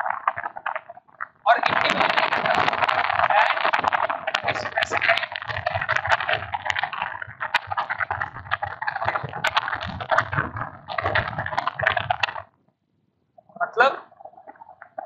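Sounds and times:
stylus scratching on tablet: 1.5s - 12.4s.

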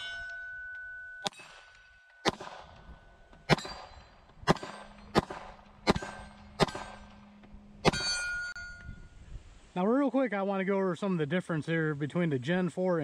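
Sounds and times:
steel plate targets ringing: 0.0s - 9.1s
pistol shots: 1.3s - 7.2s, 7.8s - 8.2s.

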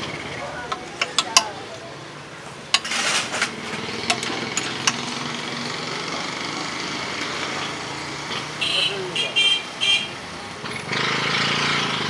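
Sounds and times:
ladle clinking on steel plates: 0.7s - 1.6s, 2.7s - 5.2s.

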